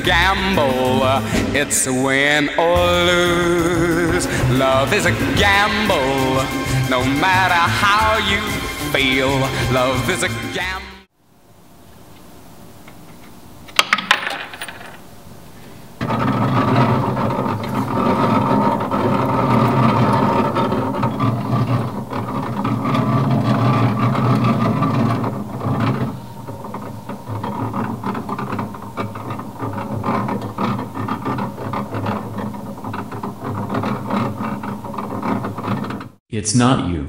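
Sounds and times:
motor-driven reels spinning: 0:15.6 - 0:36.2.

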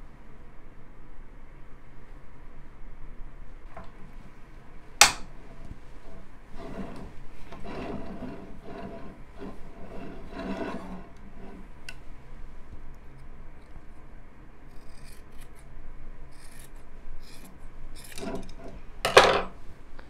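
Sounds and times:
cloth rustling and rubbing: 0:05.3 - 0:12.7.

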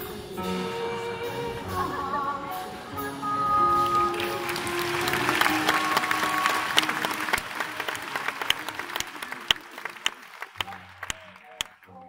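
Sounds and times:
live band held notes: 0:00.0 - 0:11.6
audience applauding: 0:03.7 - 0:12.0.

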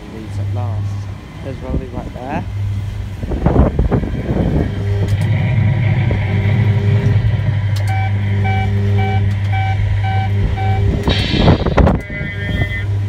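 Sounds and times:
recorded truck engine running: 0:00.0 - 0:13.0
reversing beeper: 0:04.7 - 0:13.0.

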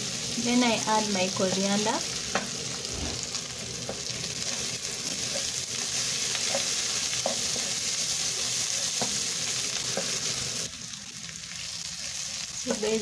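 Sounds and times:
fish frying in a pan: 0:00.0 - 0:13.0
wooden spoon scraping a pan: 0:01.3 - 0:04.1, 0:05.0 - 0:10.4.

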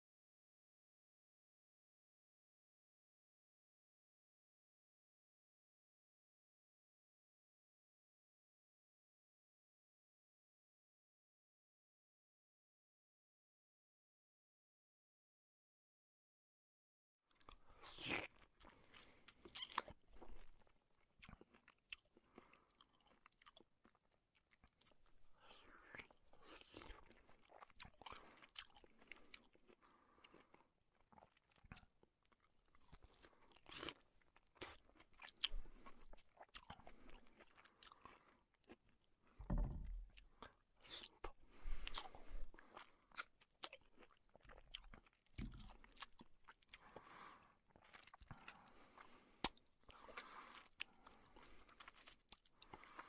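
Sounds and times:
person chewing food: 0:17.3 - 0:53.0.

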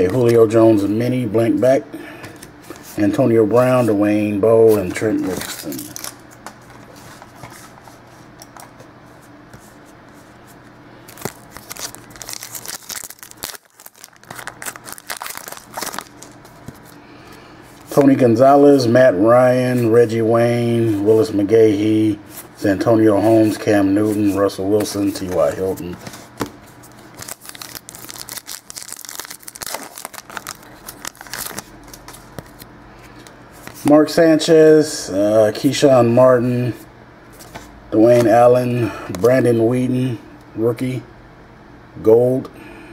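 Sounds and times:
low room hum: 0:00.0 - 0:42.9
wrapper crinkling and tearing: 0:05.2 - 0:06.2, 0:11.1 - 0:16.8, 0:26.9 - 0:32.6.

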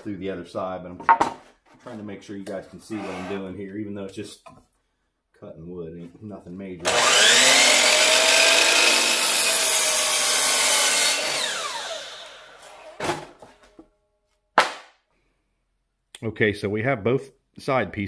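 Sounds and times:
electric saw cutting wood: 0:06.8 - 0:13.0.

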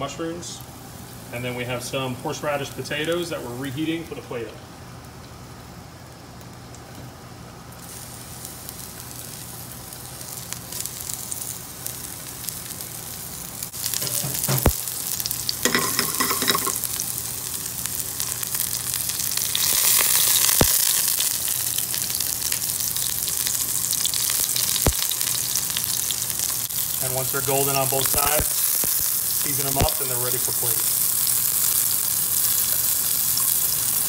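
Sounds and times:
food sizzling in hot oil: 0:07.8 - 0:34.0.

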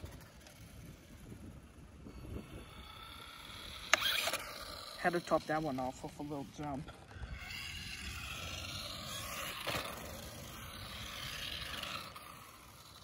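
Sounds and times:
rc truck electric motor whining: 0:00.0 - 0:13.0.

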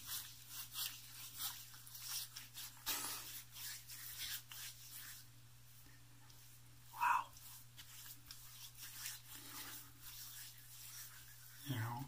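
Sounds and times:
wet hands rubbing face: 0:00.0 - 0:12.0.

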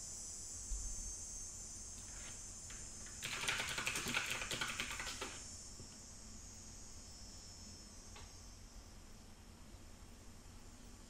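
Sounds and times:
cicadas chorus: 0:00.0 - 0:11.0
typing on computer keyboard: 0:03.1 - 0:05.4.

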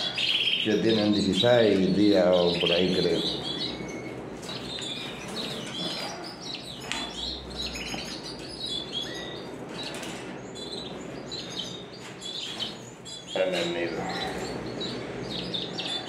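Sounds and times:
canaries chirping: 0:00.0 - 0:16.0.

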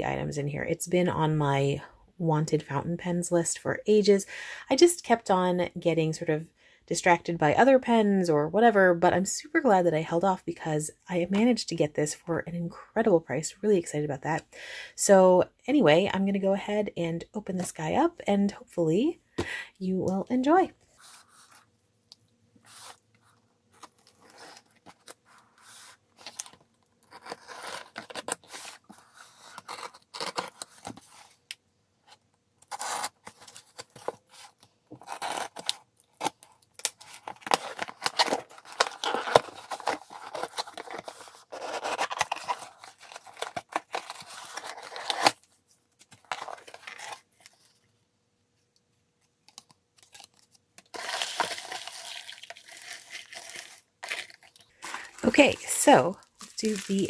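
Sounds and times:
cardboard tearing and ripping: 0:23.8 - 0:31.0, 0:32.7 - 0:45.4, 0:46.2 - 0:47.4, 0:50.9 - 0:55.2.

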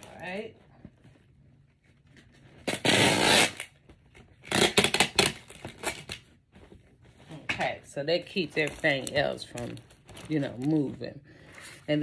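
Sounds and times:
packing material rasp: 0:02.6 - 0:03.8, 0:04.4 - 0:06.2
packing material crinkling: 0:08.2 - 0:12.0.

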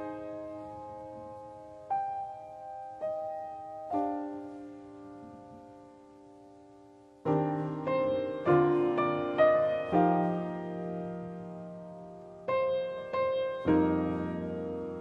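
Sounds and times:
piano chords: 0:00.0 - 0:15.0.

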